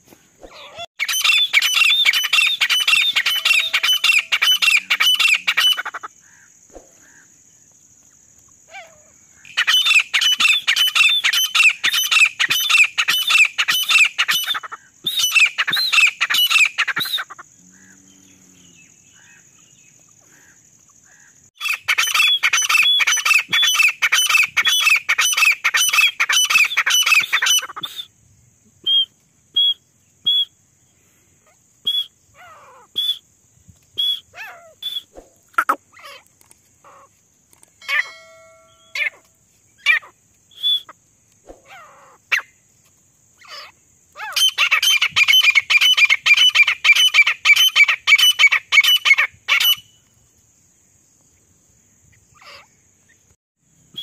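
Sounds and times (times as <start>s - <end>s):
francolin calling shrilly: 0.4s - 7.3s, 8.6s - 17.5s, 18.7s - 28.1s, 28.8s - 30.6s, 31.4s - 42.6s, 43.4s - 50.1s, 52.2s - 53.2s.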